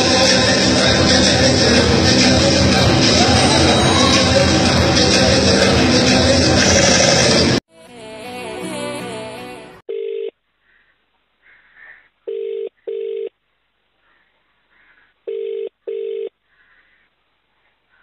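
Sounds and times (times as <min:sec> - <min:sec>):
short musical sting: 0:00.0 - 0:07.2
phone ringback tone: 0:09.9 - 0:10.3, 0:12.3 - 0:13.3, 0:15.3 - 0:16.3.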